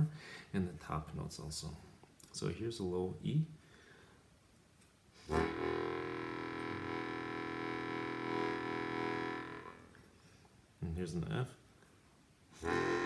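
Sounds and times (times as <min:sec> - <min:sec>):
bass harmonica low note: 0:05.2 - 0:10.0, 0:12.6 - 0:13.0.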